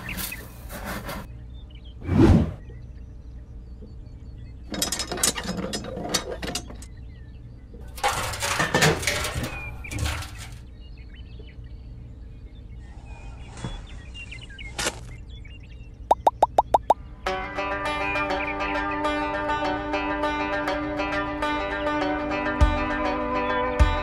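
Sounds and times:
rustling and scraping: 0.0s - 1.3s, 7.9s - 10.7s
faint bird chirps: 10.8s - 17.0s.

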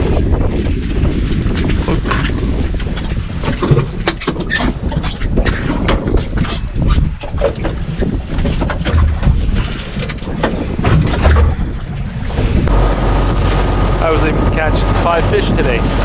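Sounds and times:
boat engine rumble: 0.0s - 16.0s
wind on microphone: 0.0s - 16.0s
knocks and clicks of fish handling: 3.0s - 11.9s.

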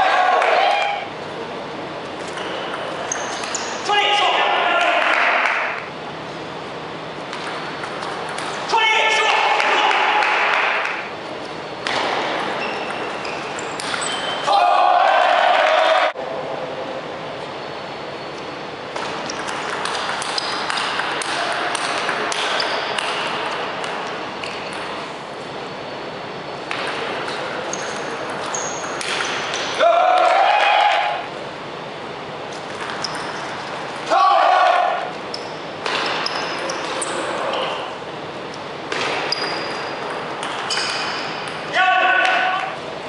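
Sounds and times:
sports hall noise: 0.0s - 43.0s
short high squeaks: 2.3s - 3.9s, 12.6s - 14.5s, 27.7s - 29.5s, 39.3s - 40.0s
ping-pong ball hitting rackets: 7.3s - 8.7s, 11.8s - 14.3s, 19.0s - 25.1s, 26.7s - 30.4s, 32.7s - 34.1s, 35.4s - 37.3s, 38.9s - 42.5s
ping-pong ball bouncing on table: 19.3s - 24.0s.

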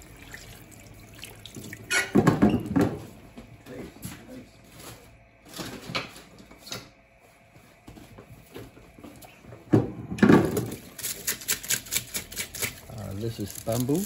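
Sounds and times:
tap water running and splashing: 0.0s - 2.9s.

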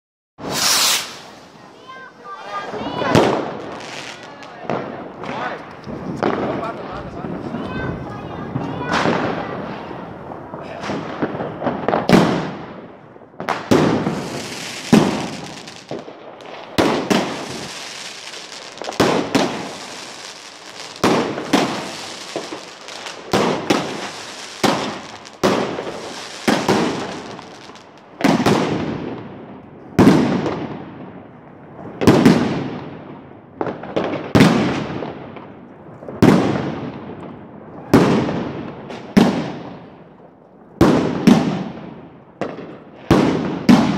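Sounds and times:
steady high hiss: 0.4s - 2.5s, 17.2s - 28.0s
fireworks bangs with echo: 0.4s - 43.9s.

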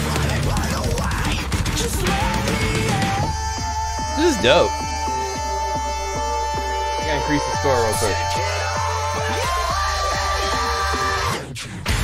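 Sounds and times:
pop-rock band music: 0.0s - 12.0s
lead vocal sliding in pitch: 3.4s - 9.5s.

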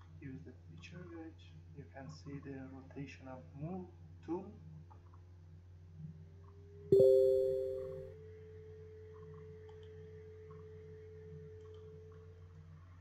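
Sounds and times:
two-tone notification ding: 6.9s - 8.0s.

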